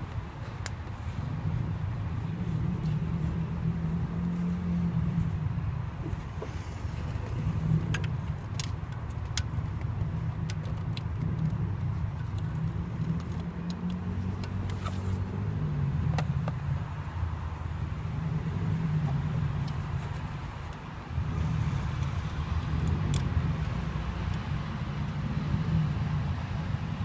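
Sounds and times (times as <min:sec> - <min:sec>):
small clicks and scrapes: 0:06.0 - 0:15.4, 0:19.0 - 0:25.2.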